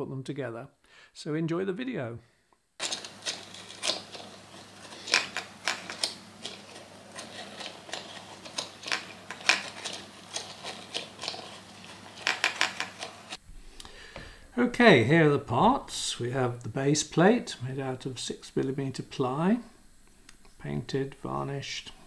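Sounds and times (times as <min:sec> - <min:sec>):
wooden gears clicking and knocking: 0:02.8 - 0:13.4.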